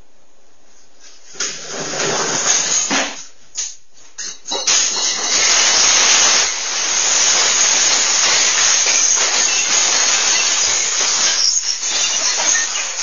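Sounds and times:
glass bottles smashing on tile: 4.2 - 13.0.

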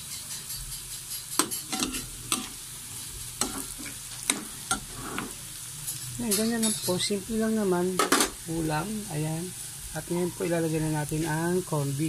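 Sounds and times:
potatoes sizzling in a pan: 0.0 - 12.0
utensil scraping and knocking pan: 0.3 - 2.6, 3.4 - 5.4.

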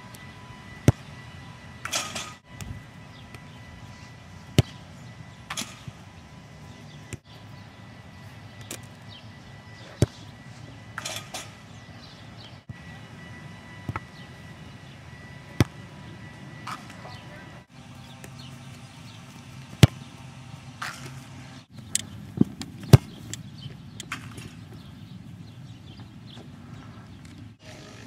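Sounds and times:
faint distant voices: 15.4 - 19.0
ball kicked hard: 22.3 - 23.3.

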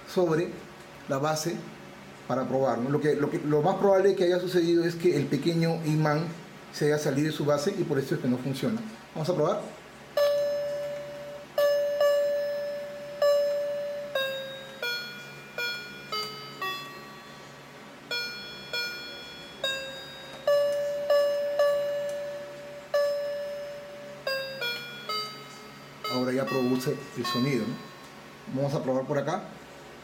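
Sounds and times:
electronic toy piano tune: 10.1 - 29.0.

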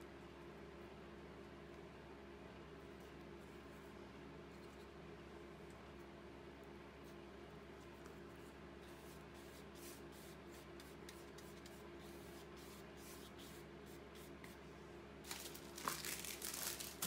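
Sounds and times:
steady low hum: 0.0 - 17.0
brush sweeping over paper: 7.8 - 14.6
paper rustling: 15.2 - 17.0.

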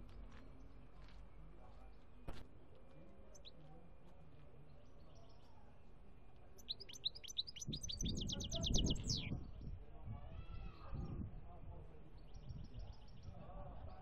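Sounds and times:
goldfinch singing: 3.3 - 3.6, 6.6 - 9.4.

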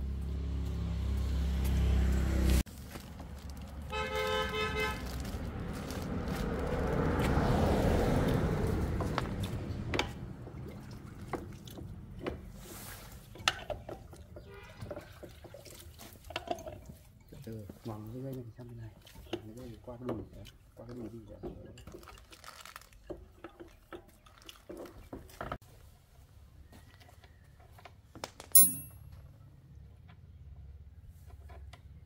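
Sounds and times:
vehicle passing: 0.0 - 2.6, 4.2 - 10.4
vehicle horn honking: 3.9 - 5.0.

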